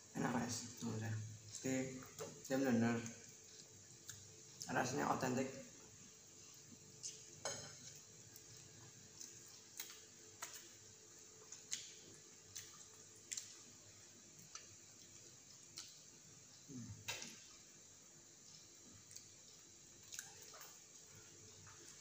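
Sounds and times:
mouth chewing: 0:11.4 - 0:13.8.

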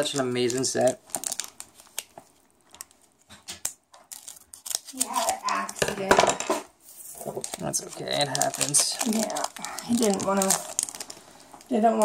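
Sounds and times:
foil pack crinkling: 0:00.0 - 0:06.0, 0:07.0 - 0:12.0
person speaking: 0:07.0 - 0:10.8, 0:11.6 - 0:12.0.

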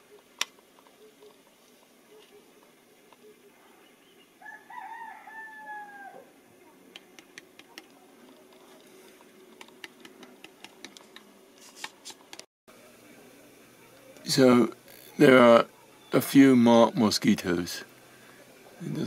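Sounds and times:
rooster crowing: 0:04.4 - 0:06.4.

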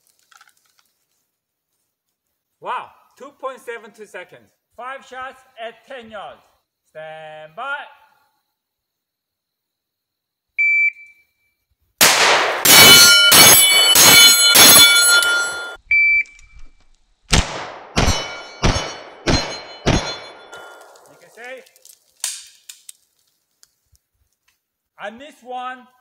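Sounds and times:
gunshots echoing: 0:12.0 - 0:15.8, 0:17.3 - 0:21.0
ringing tone: 0:12.9 - 0:15.8.

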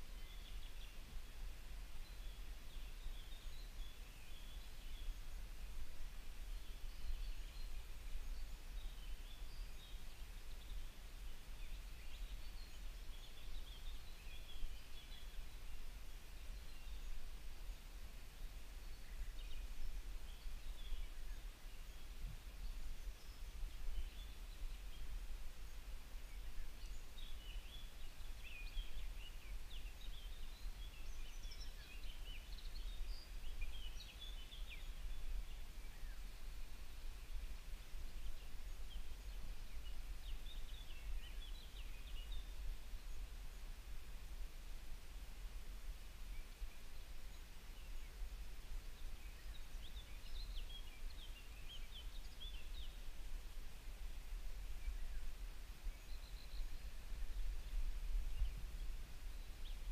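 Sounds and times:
birds chirping: 0:00.0 - 0:43.8, 0:46.3 - 0:59.9.

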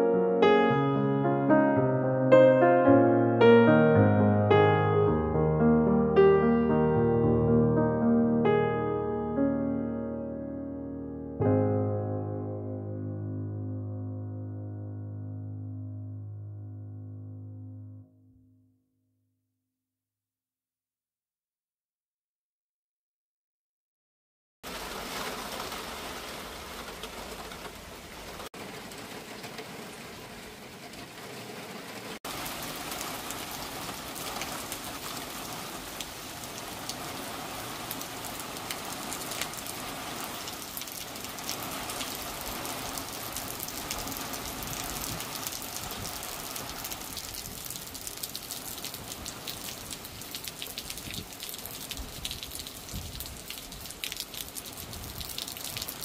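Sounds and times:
raindrops ticking: 0:24.7 - 0:39.8, 0:40.4 - 0:56.0
rain falling on trees: 0:24.7 - 0:56.0.

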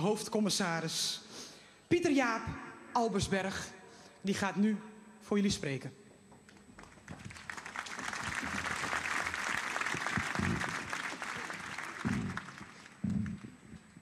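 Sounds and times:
crowd applauding: 0:06.8 - 0:13.8.

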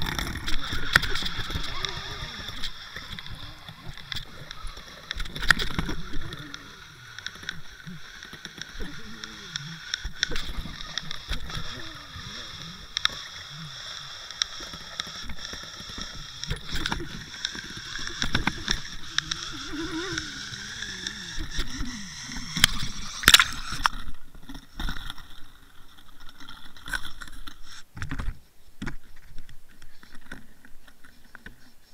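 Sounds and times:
water rushing and gurgling: 0:22.4 - 0:24.2.

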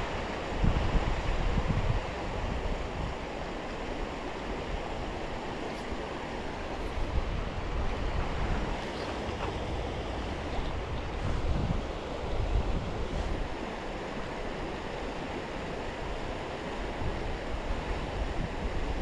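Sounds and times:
creek water running: 0:00.0 - 0:19.0
wind buffeting microphone: 0:00.6 - 0:03.2, 0:04.7 - 0:13.7.

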